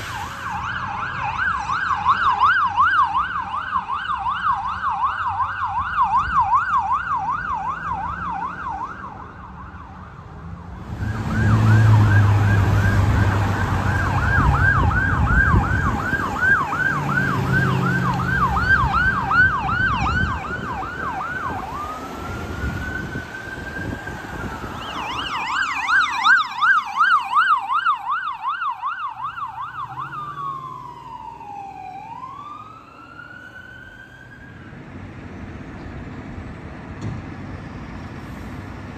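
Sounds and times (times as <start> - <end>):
electronic siren yelp and wail: 0.0 - 10.0, 11.0 - 34.7
fire engine rumbling: 0.0 - 38.9.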